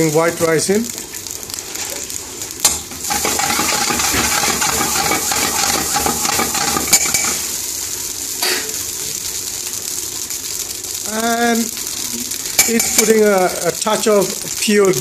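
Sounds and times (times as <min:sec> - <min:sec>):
onions frying in oil: 0:00.0 - 0:15.0
spoon stirring rice in pan: 0:03.0 - 0:07.5.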